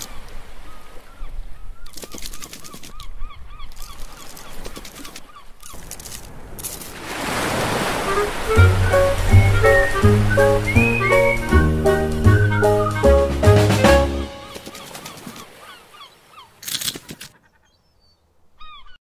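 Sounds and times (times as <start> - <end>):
rushing wave splash: 6.3 - 14.6.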